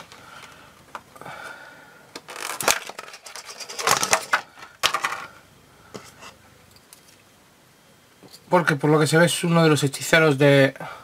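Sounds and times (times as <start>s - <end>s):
plastic packaging crackling: 2.2s - 5.2s.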